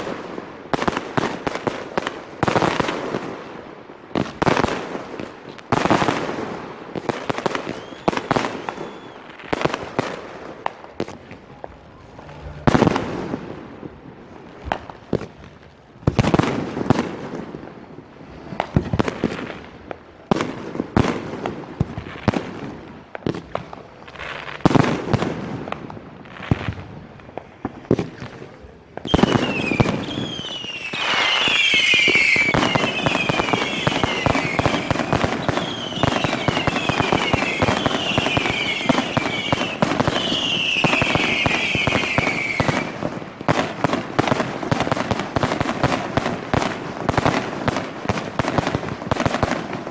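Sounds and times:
rapid firework bangs and crackling: 0.0 - 49.9
high falling firework whistles: 7.4 - 9.5, 11.0 - 14.0, 29.0 - 43.0
firework shell bursts echoing: 10.7 - 15.4.

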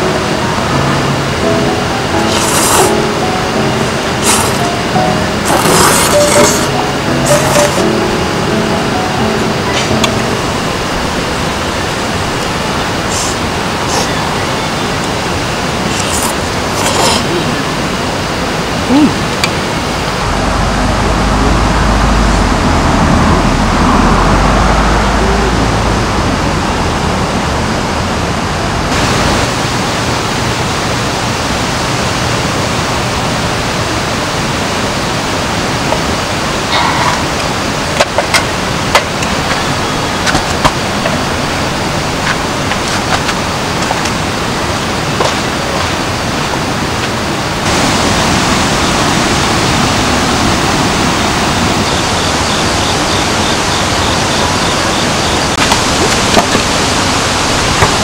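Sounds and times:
rushing water hiss: 0.0 - 58.0
deep rumble: 19.8 - 29.9.

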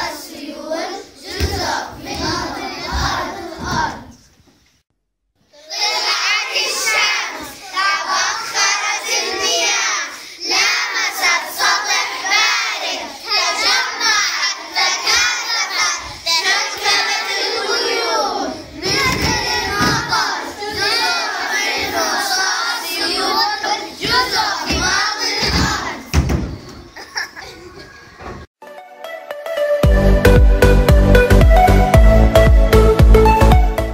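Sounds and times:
children singing together: 0.0 - 4.3, 5.5 - 28.4
low thumps: 18.8 - 20.9.

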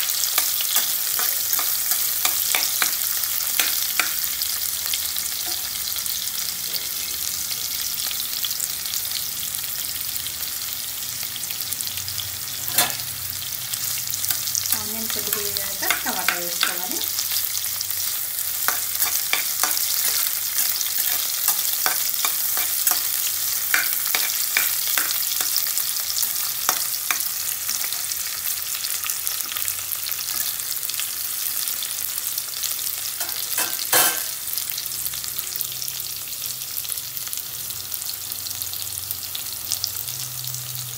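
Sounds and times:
onions sizzling in hot oil: 0.0 - 40.9
spatula scraping pan: 18.0 - 28.2.

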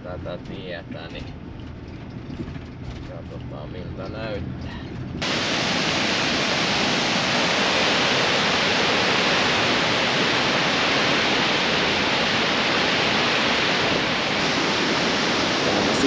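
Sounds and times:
waterfall rushing: 5.2 - 16.0.

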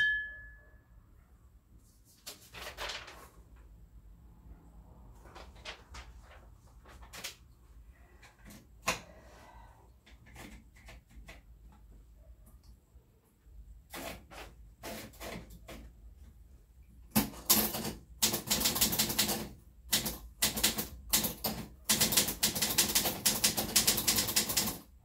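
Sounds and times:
typewriter keys clacking: 17.1 - 24.9.

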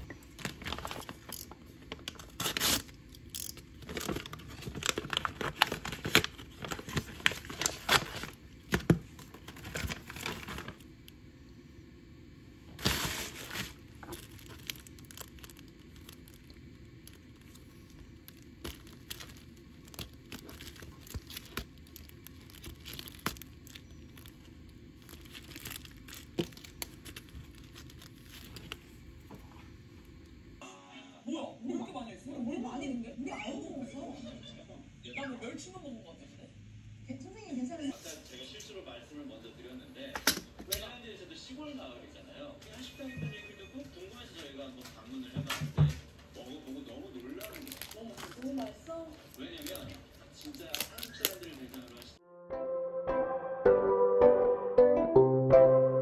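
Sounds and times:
plastic packaging crinkling: 0.0 - 11.2, 12.7 - 30.3, 46.4 - 52.2
paper tearing: 2.1 - 3.0, 12.8 - 28.8, 47.2 - 52.1.

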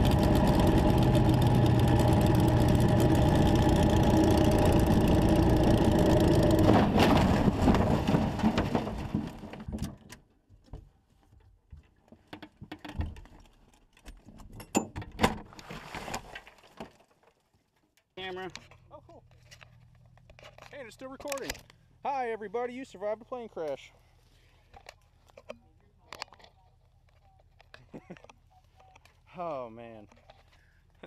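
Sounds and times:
light plane engine running: 0.0 - 6.8
branches and debris cracking: 0.1 - 9.9
plane crashing into tree: 6.3 - 9.6.

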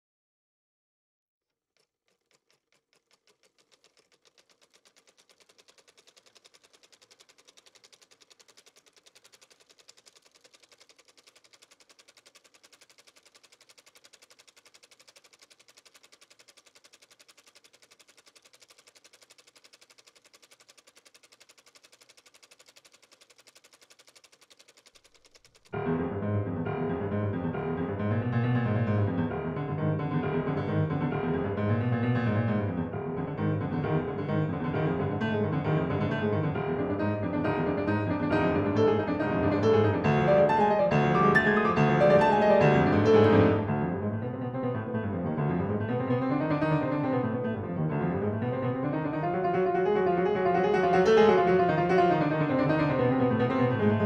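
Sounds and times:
rapid faint clicking: 1.8 - 25.8, 28.4 - 43.8, 45.8 - 54.0
piano music: 25.8 - 54.0.

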